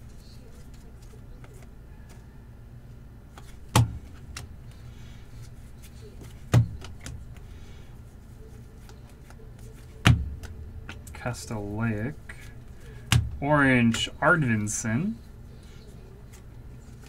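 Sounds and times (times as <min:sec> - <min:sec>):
steady low hum: 0:00.0 - 0:17.0
trading cards flicking and clicking: 0:03.3 - 0:14.7.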